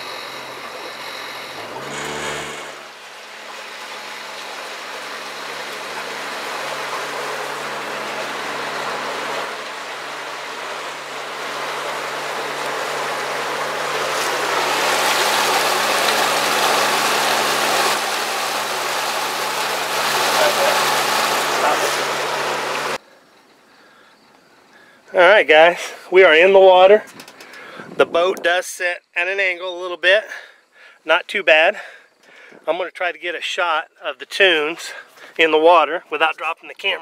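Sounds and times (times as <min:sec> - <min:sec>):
water rushing and splashing: 0:00.0 - 0:23.0
boat motor humming: 0:00.0 - 0:24.1.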